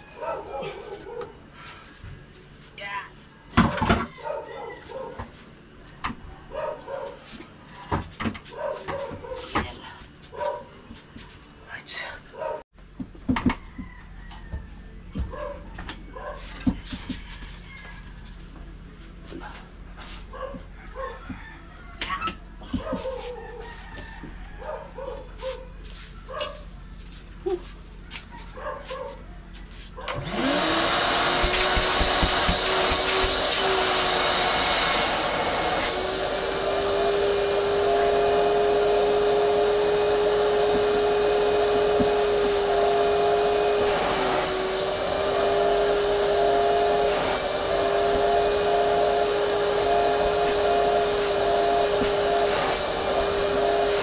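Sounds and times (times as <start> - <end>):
vacuum cleaner running: 30.1 - 54.0.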